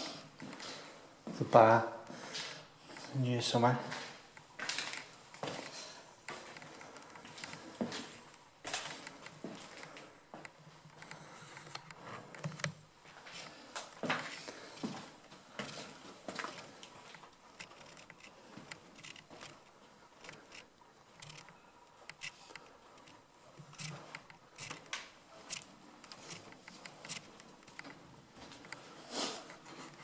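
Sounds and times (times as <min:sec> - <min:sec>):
footsteps: 0:03.8 - 0:30.0
camera handling clicks and scuffs: 0:15.6 - 0:28.8.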